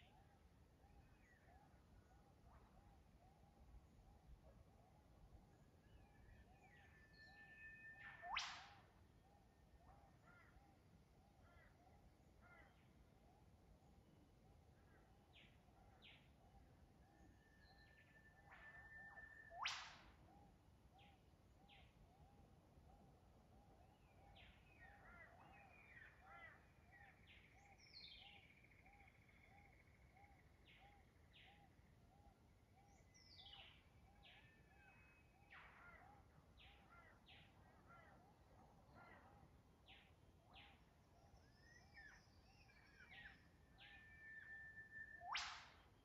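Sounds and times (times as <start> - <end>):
bird chirps: 5.0 - 10.8, 14.7 - 46.0
falling bird whistles: 45.1 - 45.7.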